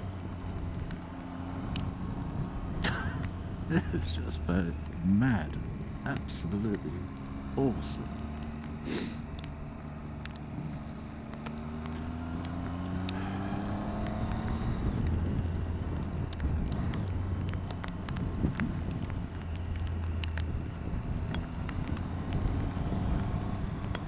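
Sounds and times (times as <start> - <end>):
motorcycle engine accelerating: 0.0 - 24.0
wind noise on microphone: 14.6 - 19.2.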